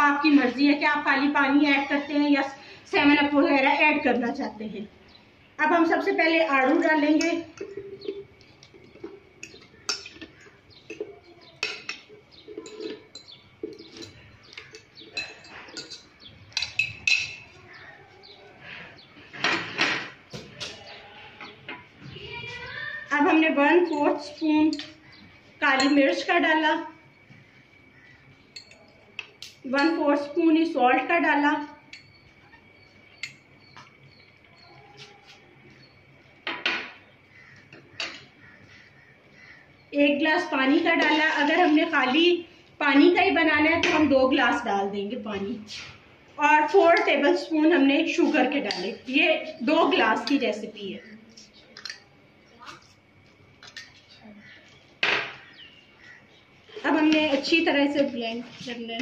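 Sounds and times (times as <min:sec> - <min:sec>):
knocks and clinks: 0:07.2 - 0:17.6.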